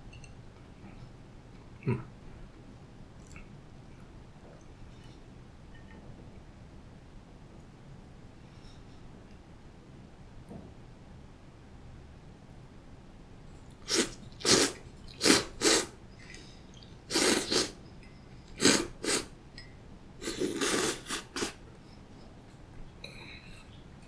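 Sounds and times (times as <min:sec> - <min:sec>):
person slurping noodles: 0:13.9 - 0:15.9, 0:17.1 - 0:17.8, 0:18.6 - 0:19.3, 0:20.2 - 0:21.6.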